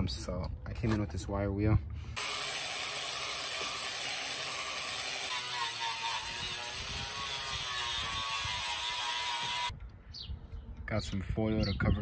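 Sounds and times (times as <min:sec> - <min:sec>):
wire wheel grinder on sheet metal: 0:02.2 - 0:09.7.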